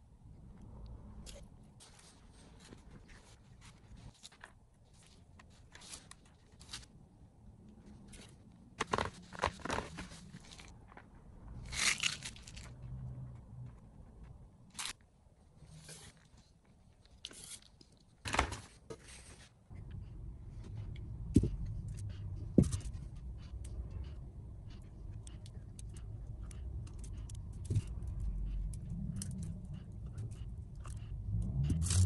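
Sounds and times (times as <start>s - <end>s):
steady low hum: 19.7s - 32.0s.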